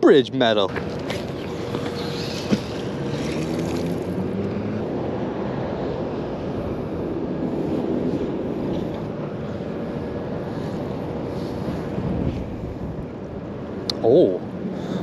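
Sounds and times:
passing vehicle engine hum: 0.7 - 15.0
wind noise on microphone: 11.1 - 13.7.

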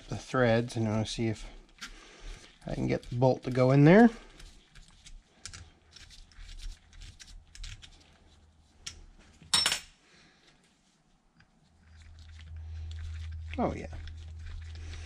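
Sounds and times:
low steady hum: 7.8 - 15.0.

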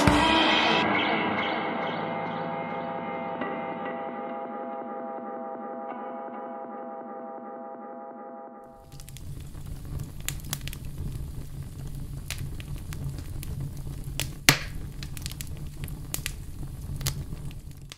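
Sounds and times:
fire crackling and popping: 8.7 - 17.9
low fire rumble: 8.8 - 17.9.

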